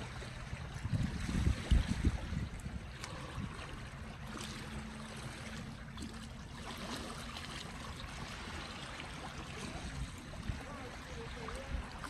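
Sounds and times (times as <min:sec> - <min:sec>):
small waves lapping against rocks: 0:00.0 - 0:12.0.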